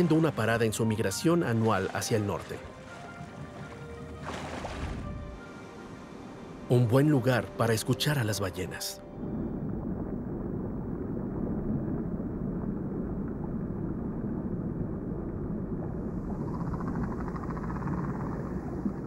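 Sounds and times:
low underwater rumble: 2.7s - 5.5s, 9.1s - 19.0s.

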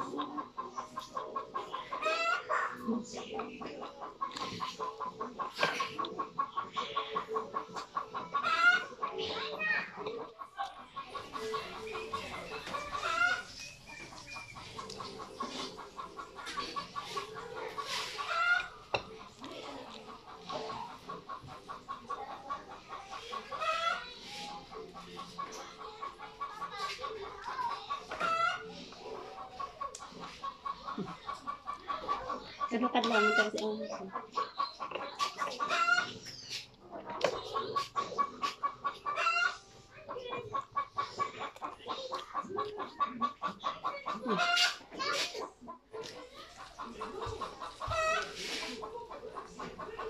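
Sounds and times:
chickens clucking: 0.0s - 50.0s
chicken squawks: 2.0s - 2.8s, 8.4s - 9.0s, 12.8s - 13.6s, 28.1s - 28.7s, 34.4s - 36.7s, 37.5s - 39.6s.

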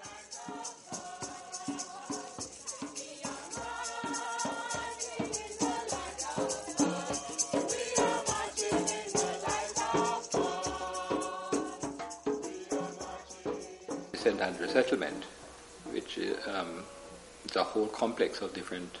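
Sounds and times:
shaker rattling: 0.0s - 15.1s
crowd singing a hymn: 0.0s - 17.2s
hand drum: 0.0s - 17.2s.

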